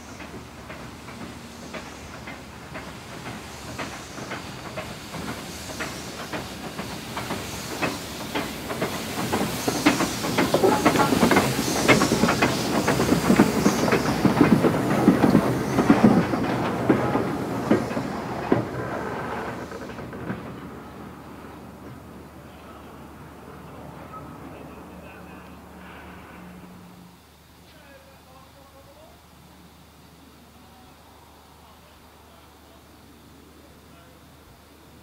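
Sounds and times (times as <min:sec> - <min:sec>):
train wheels clattering over rails: 0:00.0 - 0:26.5
steam hissing: 0:00.0 - 0:35.0.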